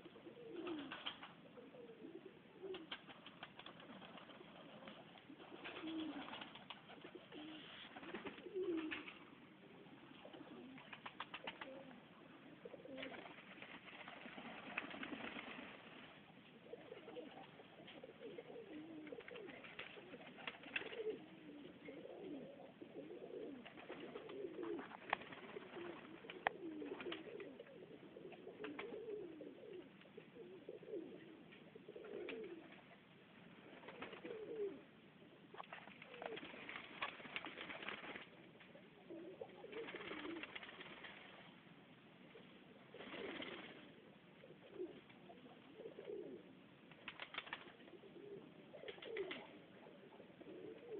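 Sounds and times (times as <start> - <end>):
pigeons cooing: 0.0 - 33.0, 33.6 - 41.5, 42.3 - 50.9
rustling: 0.2 - 12.0, 12.6 - 34.8, 35.5 - 41.6.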